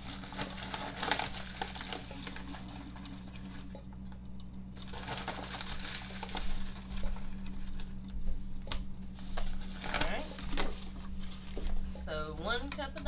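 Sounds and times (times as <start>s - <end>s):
paper bag rustling: 0.0s - 3.8s, 4.8s - 12.6s.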